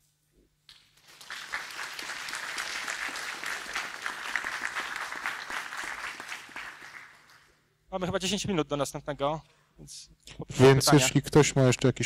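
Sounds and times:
audience applauding: 1.0s - 7.6s.

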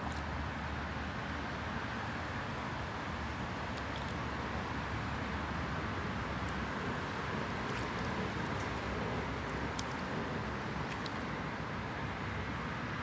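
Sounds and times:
faint high ticks: 9.5s - 10.1s.

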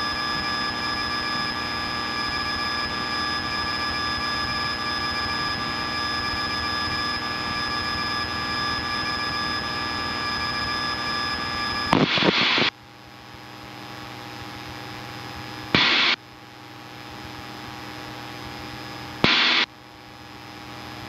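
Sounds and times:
airplane engine drone: 0.0s - 12.7s, 15.3s - 16.2s
radio static bursts: 11.9s - 12.7s, 15.8s - 16.2s, 19.2s - 19.7s.

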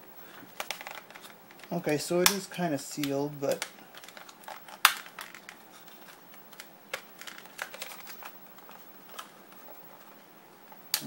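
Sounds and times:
plastic crinkling: 0.2s - 10.2s
packaging clicks and taps: 3.0s - 9.3s.

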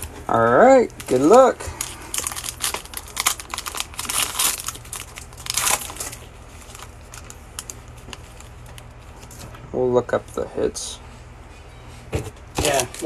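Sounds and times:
foil wrapper crinkling and tearing: 0.0s - 9.4s.

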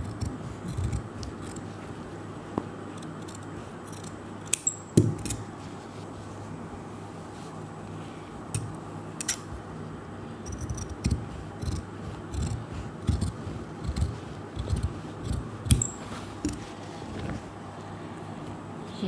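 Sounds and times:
shears cutting fabric: 0.0s - 1.9s, 10.5s - 17.5s.

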